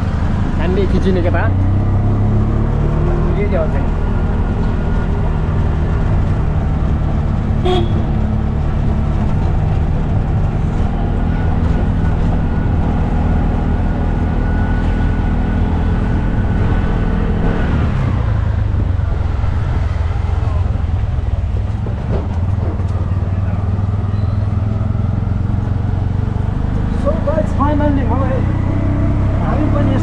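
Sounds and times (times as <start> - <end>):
auto-rickshaw engine running: 0.0 - 30.0
horn toot: 7.6 - 8.2.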